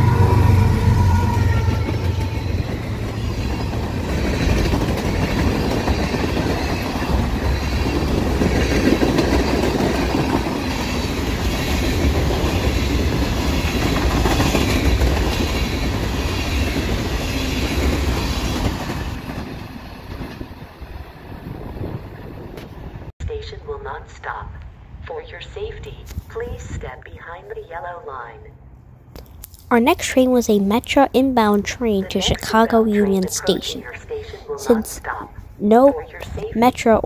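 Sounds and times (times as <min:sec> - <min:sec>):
freight train rolling past: 0:00.0 - 0:23.1.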